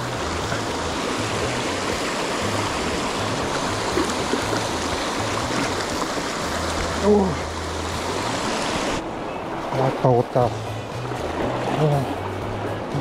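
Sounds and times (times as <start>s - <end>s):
stream rushing over rocks: 0.0s - 13.0s.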